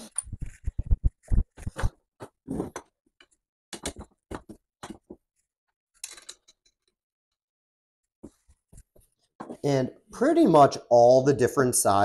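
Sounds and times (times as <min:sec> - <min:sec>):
metal poles clicking and knocking: 0:02.7 - 0:05.2, 0:06.0 - 0:06.9.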